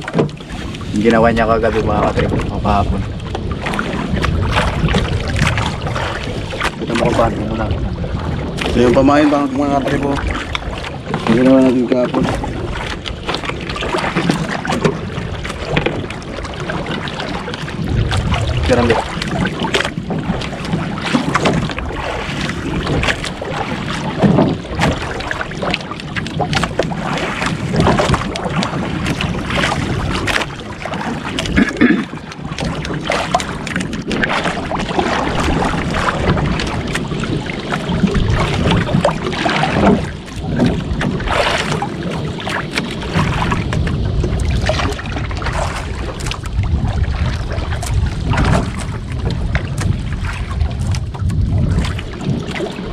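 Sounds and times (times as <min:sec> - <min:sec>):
waves slapping against boat hull: 0:00.0 - 0:52.9
wind buffeting microphone: 0:00.0 - 0:52.9.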